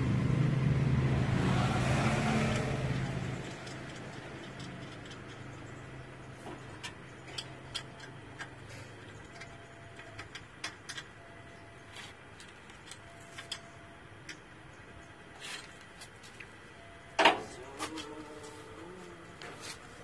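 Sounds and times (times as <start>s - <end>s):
metal parts clicking and tapping: 3.4s - 5.8s, 6.7s - 8.6s, 9.2s - 11.1s.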